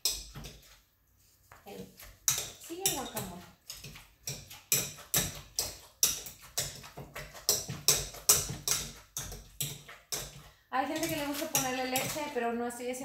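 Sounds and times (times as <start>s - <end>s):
masher pounding in a bowl: 2.0s - 12.4s.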